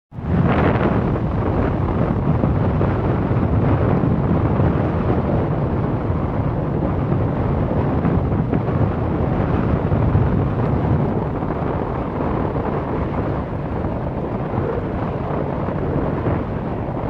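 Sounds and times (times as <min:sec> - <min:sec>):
cable car ride noise: 0:00.2 - 0:17.0.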